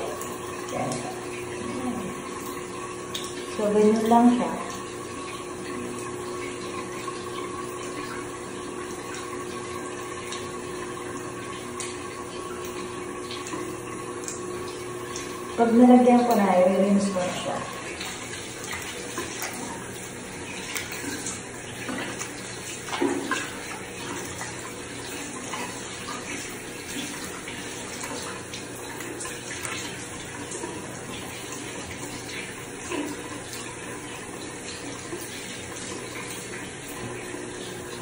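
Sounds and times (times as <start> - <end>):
tap water running into sink: 0.0 - 38.0
water splashing on face: 0.0 - 38.0.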